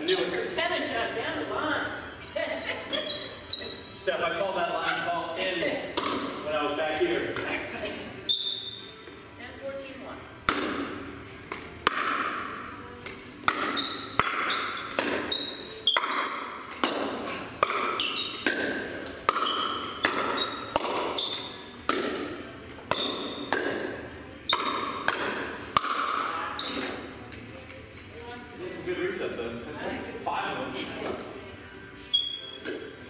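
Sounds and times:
paddles hitting plastic ball: 5.9 - 6.4, 10.5 - 28.1.

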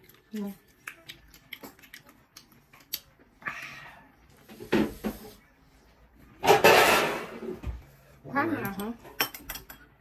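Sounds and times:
person chewing wetly: 0.0 - 3.4.

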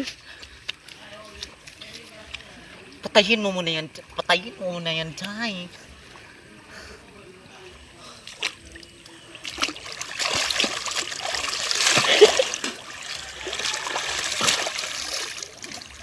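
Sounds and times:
river water splashing: 7.8 - 16.0.

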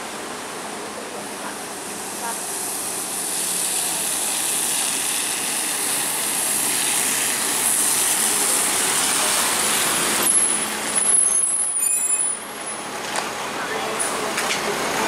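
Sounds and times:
bus engine: 0.0 - 15.0
tyres on wet road: 0.0 - 15.0
rain hissing: 1.7 - 11.9.

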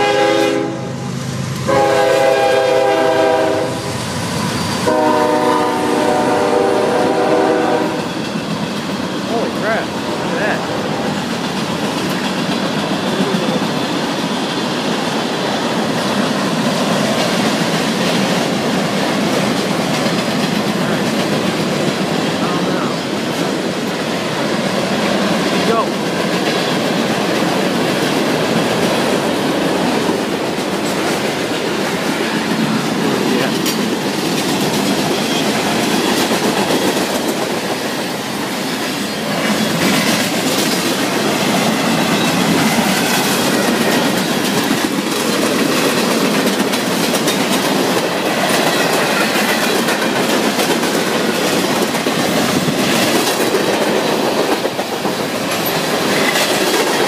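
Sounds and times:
steel wheels rumbling on rail: 0.0 - 57.0
wheels clicking over rail joints: 11.0 - 22.5, 23.1 - 57.0.

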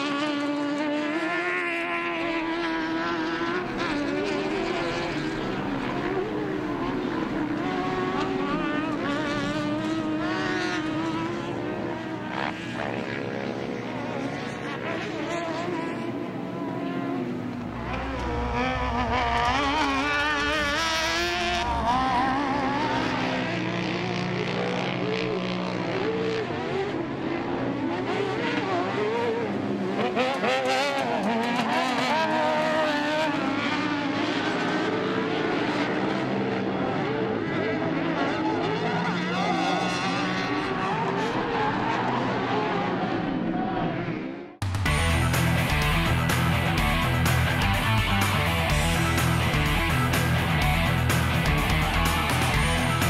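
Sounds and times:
racing engines revving: 0.0 - 53.0
deep engine rumble: 17.2 - 24.2, 44.6 - 53.0.

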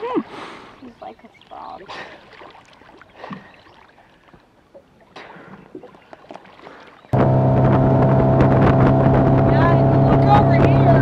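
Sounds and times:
faint water splashing: 0.0 - 7.2
motorboat engine idling: 7.1 - 11.0.

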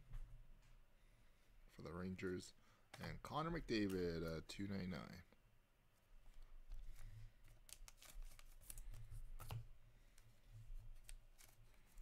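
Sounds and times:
cards rustling and clicking: 2.9 - 4.6, 6.3 - 12.0.

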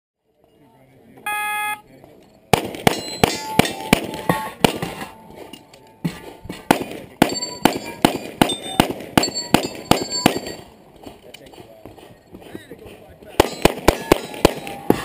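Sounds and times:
pistol shots: 2.5 - 5.1, 13.4 - 15.0
steel targets clanging: 2.9 - 12.3, 13.4 - 15.0.

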